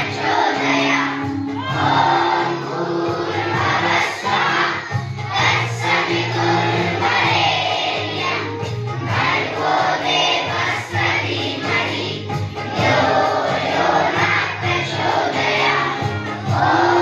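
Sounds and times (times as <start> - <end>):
children's choir singing: 0.0 - 17.0.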